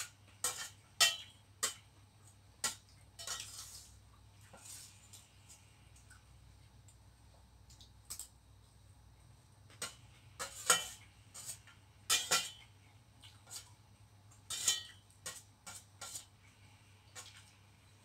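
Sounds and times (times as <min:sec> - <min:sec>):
metal spoon clinking on steel bowl: 0:00.0 - 0:01.8.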